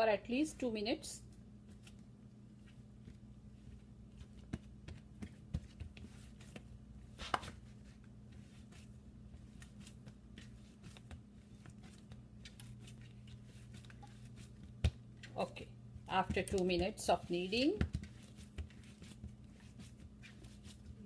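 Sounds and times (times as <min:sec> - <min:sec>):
steady low hum: 0:00.0 - 0:21.0
hands kneading dough: 0:00.3 - 0:21.0.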